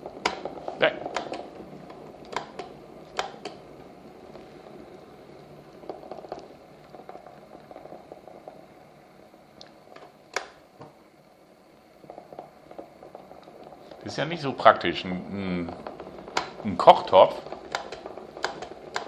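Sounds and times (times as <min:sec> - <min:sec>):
electric kettle simmering: 0:00.0 - 0:19.0
small ticks and clicks: 0:15.7 - 0:19.0.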